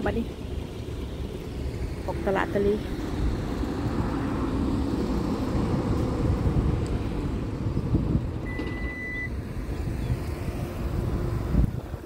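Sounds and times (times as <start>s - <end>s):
vehicle engine rumble: 0.0s - 12.0s
short high-pitched beep: 8.5s - 9.3s.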